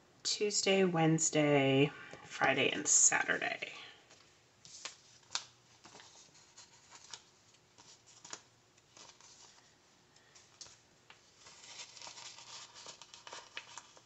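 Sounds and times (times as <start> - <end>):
paper rustling: 4.1 - 14.0.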